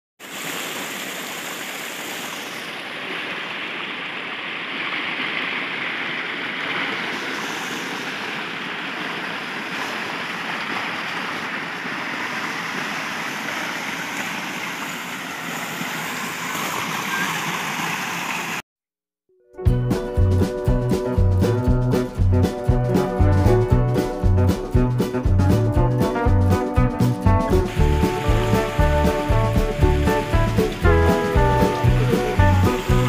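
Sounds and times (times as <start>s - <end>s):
stream flowing over stones: 0.2s - 18.6s, 27.6s - 33.0s.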